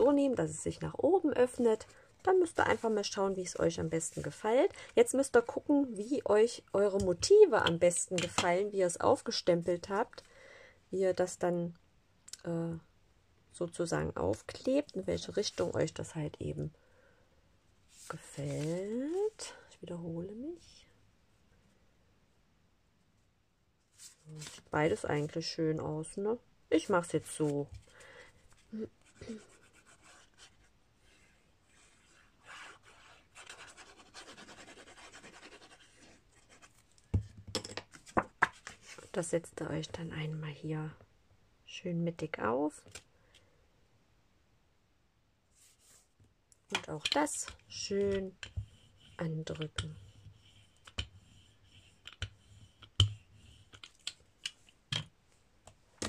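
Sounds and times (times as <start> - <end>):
glue nozzle rubbing on cardstock: 49.8 - 53.8.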